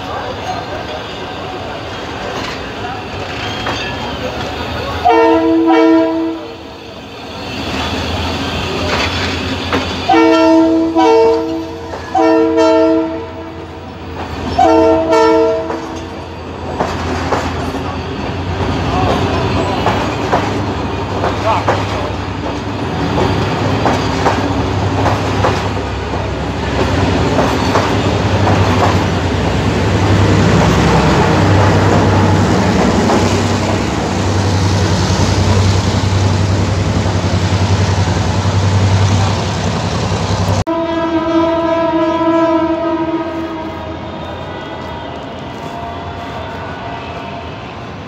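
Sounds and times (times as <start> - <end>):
multi-toned train horn blast: 5.0 - 6.8, 10.1 - 13.8, 14.6 - 16.0, 40.6 - 48.0
train wheels clattering over rail joints: 7.8 - 10.1, 15.6 - 29.5.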